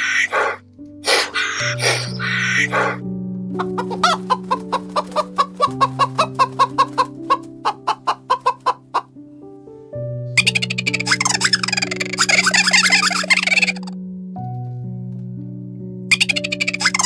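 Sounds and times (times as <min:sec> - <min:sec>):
soft piano music: 0:00.0 - 0:17.0
chickens clucking: 0:00.1 - 0:03.0, 0:03.6 - 0:09.1, 0:10.4 - 0:13.9, 0:16.1 - 0:17.0.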